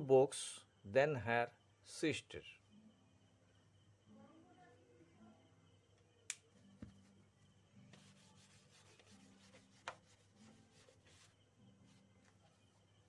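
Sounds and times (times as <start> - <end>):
hand rubbing whiteboard: 7.9 - 12.8.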